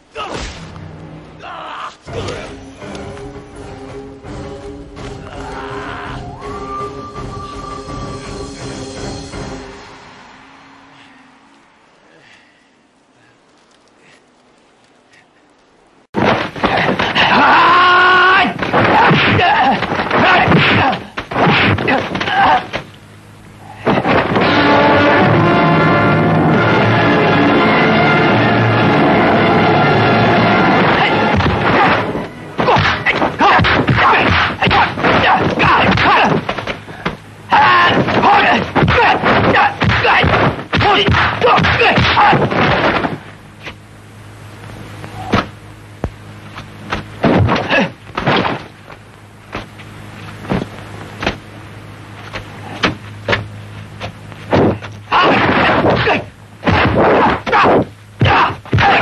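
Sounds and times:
low soundtrack hum: 0.0 - 59.0
sharp snaps and thunks: 16.2 - 17.3, 18.6 - 23.0, 31.3 - 37.2, 37.8 - 43.8, 45.3 - 51.4, 52.2 - 59.0
fighters shouting: 16.6 - 22.8, 23.8 - 42.9, 47.6 - 48.0, 55.1 - 59.0
punch whacks and thuds: 18.5 - 22.9, 30.9 - 37.2, 37.8 - 43.8, 45.3 - 45.6, 46.9 - 48.7, 50.5 - 51.4, 52.3 - 59.0.

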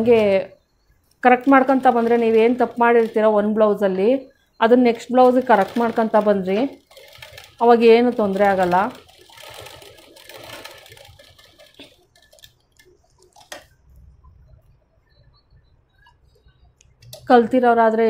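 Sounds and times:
sewing machine stitching: 1.4 - 3.5, 4.9 - 12.6.

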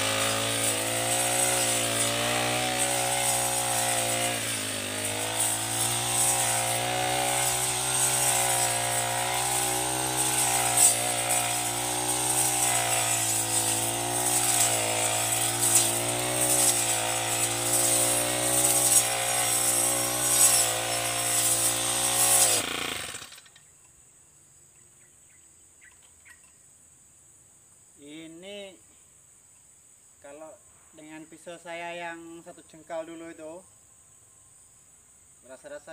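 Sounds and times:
brush cutter engine running: 0.0 - 23.6
faint insect chirring: 23.3 - 35.9.

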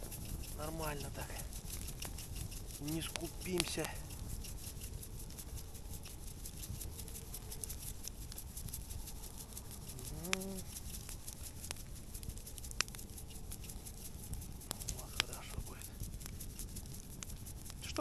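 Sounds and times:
wood fire crackling: 0.0 - 18.0
hum-like voice: 10.0 - 10.7.

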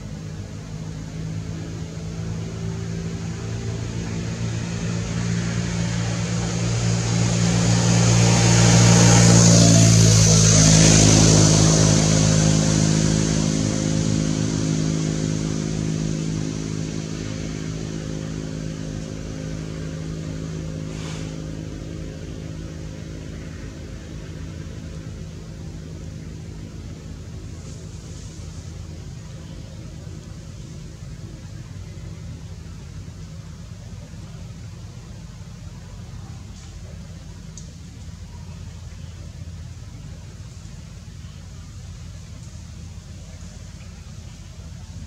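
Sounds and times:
vehicle engine passing by: 0.0 - 33.5.

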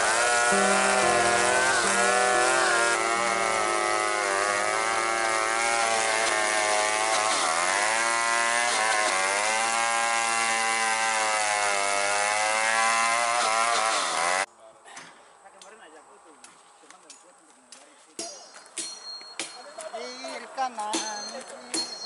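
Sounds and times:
chainsaw cutting log: 0.0 - 14.5.

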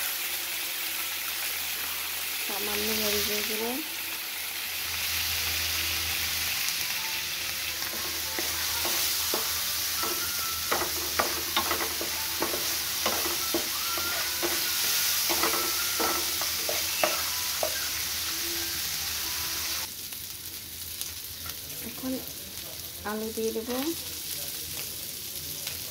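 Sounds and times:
food sizzling in oil: 0.0 - 25.9
spatula scraping a pan: 7.8 - 18.0.

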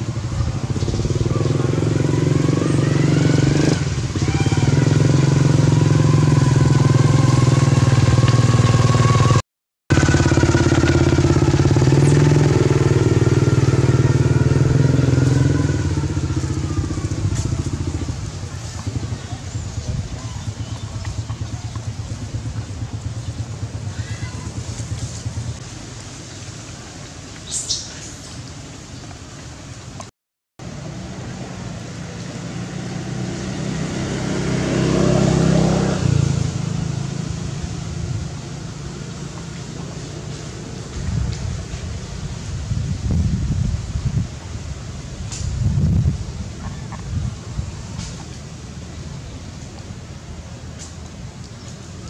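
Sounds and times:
small engine running: 0.1 - 25.6.

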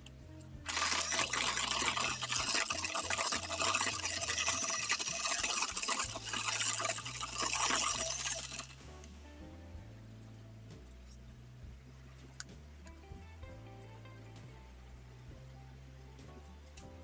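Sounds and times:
beaters rattling against bowl: 0.7 - 8.8
electric hand mixer whirring: 0.7 - 8.8.

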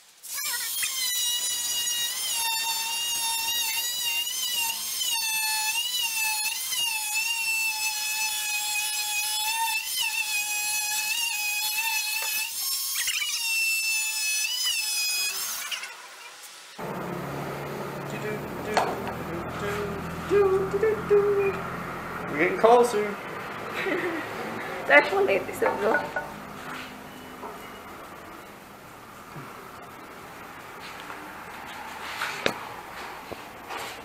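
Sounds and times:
multi-tool whine cutting wood: 0.2 - 23.9.

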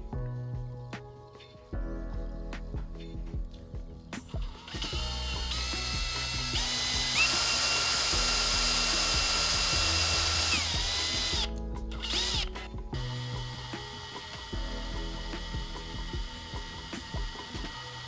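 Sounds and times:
electric drill whining: 4.3 - 18.0.

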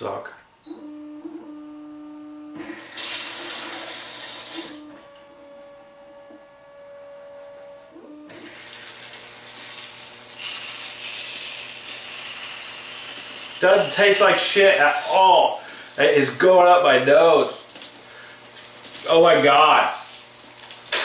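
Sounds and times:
water jet spraying and splashing: 2.9 - 4.8, 8.4 - 21.0.

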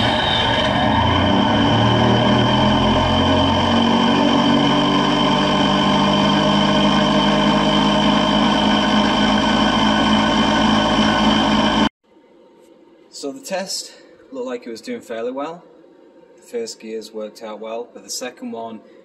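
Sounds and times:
gear train whine: 0.0 - 11.9.

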